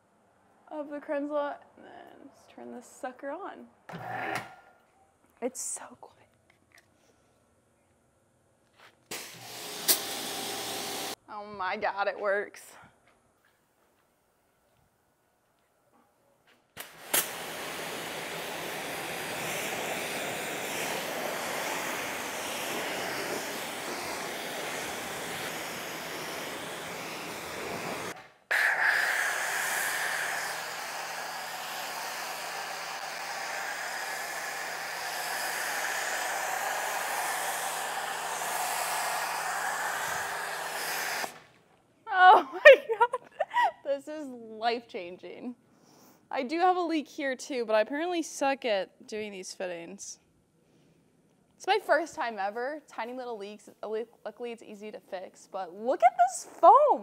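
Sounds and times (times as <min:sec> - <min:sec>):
foam cannon spraying foam: 0:09.1 - 0:11.2, 0:16.8 - 0:41.5
pressure washer spraying water: 0:09.1 - 0:11.2, 0:16.8 - 0:41.4.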